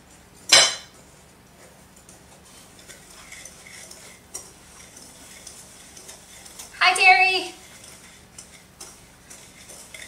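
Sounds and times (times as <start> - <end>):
whisk scraping and ticking: 1.9 - 10.0
whisk clinking on glass bowl: 2.8 - 10.0.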